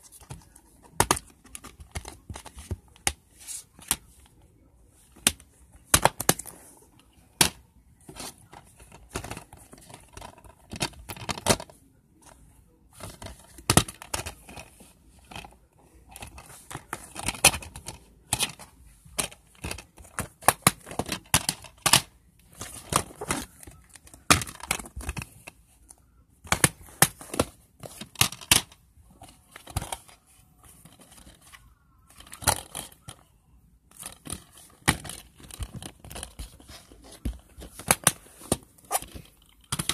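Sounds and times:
plastic cases clicking and snapping: 0:00.1 - 0:04.4, 0:05.1 - 0:06.6, 0:07.3 - 0:11.8, 0:13.0 - 0:33.3, 0:33.9 - 0:39.9
rustling: 0:33.9 - 0:39.9.

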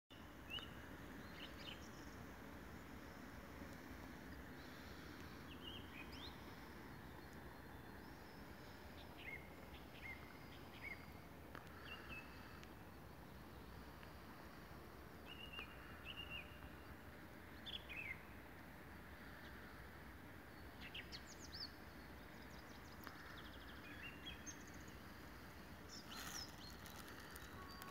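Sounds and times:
steady background hiss: 0:00.1 - 0:27.9
faint bird chirps: 0:25.9 - 0:27.9.

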